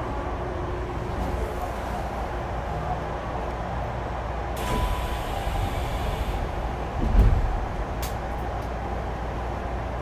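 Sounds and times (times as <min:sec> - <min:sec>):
train cabin noise: 0:00.0 - 0:10.0
low thud of train halting: 0:04.6 - 0:08.0.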